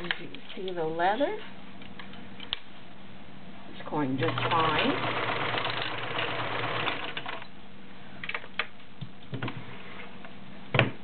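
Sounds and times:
sewing machine stitching: 0:04.2 - 0:07.5.

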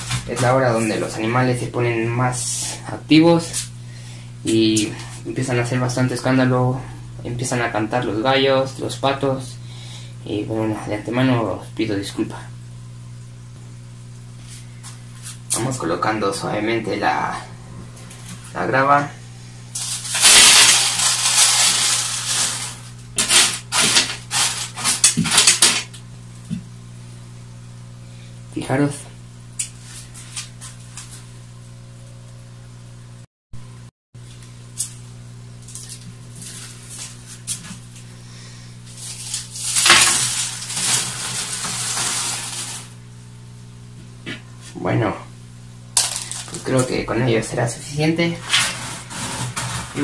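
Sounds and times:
steady low hum: 0:00.0 - 0:50.0
gravel pouring into glass tank: 0:19.8 - 0:22.9, 0:39.0 - 0:42.9.

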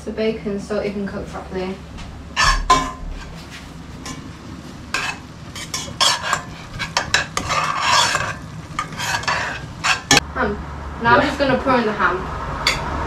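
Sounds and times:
metal utensil scraping saucepan: 0:02.3 - 0:04.3, 0:04.9 - 0:10.2
utensil clinking against pan: 0:02.4 - 0:03.1
bacon sizzling: 0:02.4 - 0:10.2.

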